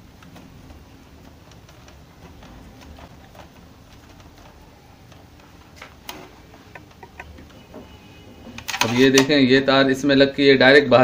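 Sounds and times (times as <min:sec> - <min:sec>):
tape wrapping clicks and crackles: 0:00.0 - 0:07.6, 0:08.5 - 0:09.4.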